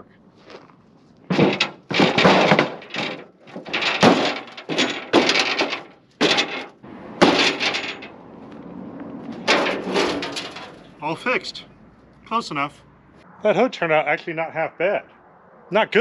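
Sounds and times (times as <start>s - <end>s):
boots stomping on metal hood: 1.3s - 8.1s, 9.3s - 10.8s.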